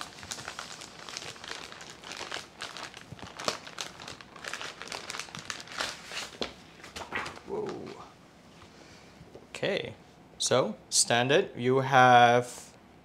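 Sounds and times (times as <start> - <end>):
plastic film crinkling: 0.0 - 8.0.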